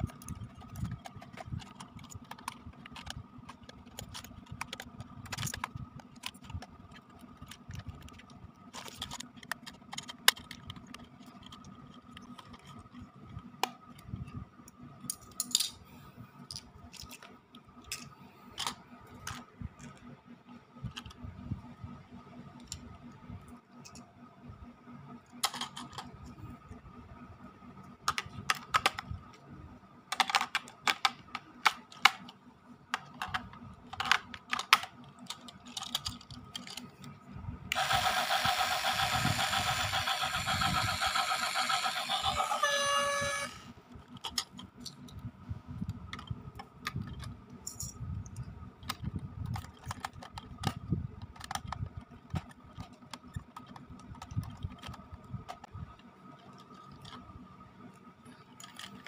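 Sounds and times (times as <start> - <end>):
toy speaker locomotive sound effect: 37.7 - 43.8.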